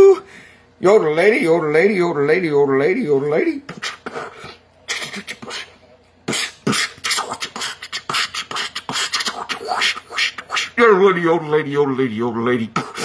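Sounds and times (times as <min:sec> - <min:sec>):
beatboxing into cupped hands: 0:03.6 - 0:10.8, 0:12.7 - 0:13.0.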